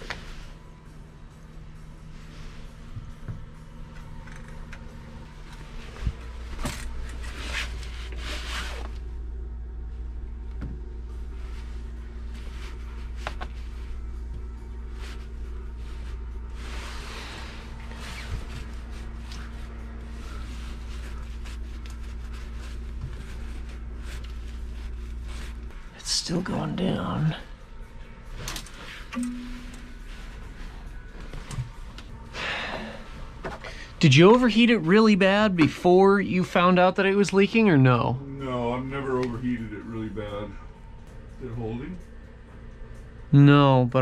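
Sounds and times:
low steady hum: 0.0 - 44.0
rustling handling noises: 11.1 - 25.8
faint steady tone: 28.9 - 31.1.

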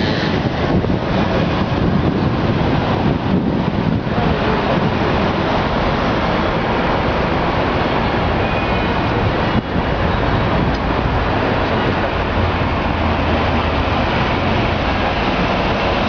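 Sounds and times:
traffic running: 0.0 - 16.0
trams running: 0.0 - 16.0.

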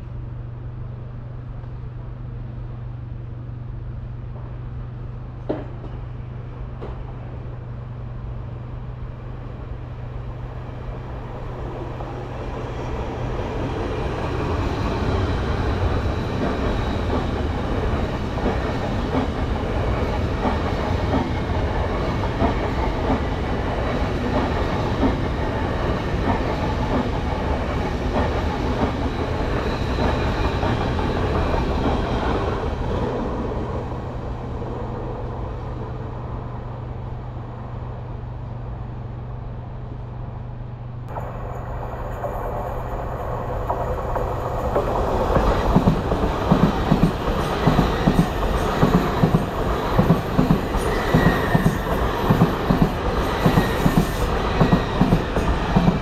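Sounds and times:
train passing: 0.0 - 56.0
wheels clattering on rail: 41.1 - 56.0.

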